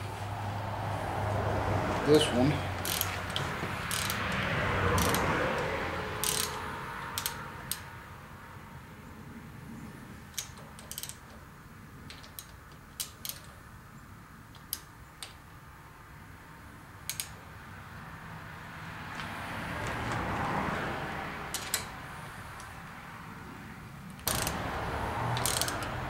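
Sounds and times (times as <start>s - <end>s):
wrench metallic clicks: 2.8s - 7.9s, 10.3s - 11.4s, 12.1s - 13.6s, 17.0s - 17.4s, 21.5s - 22.0s, 24.1s - 24.6s, 25.3s - 26.0s.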